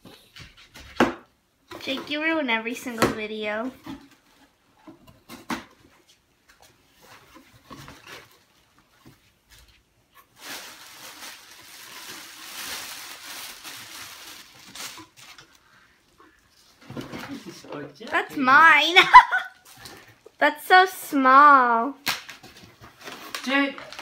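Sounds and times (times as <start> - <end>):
plastic packing crinkling: 10.2 - 15.7, 22.1 - 24.0.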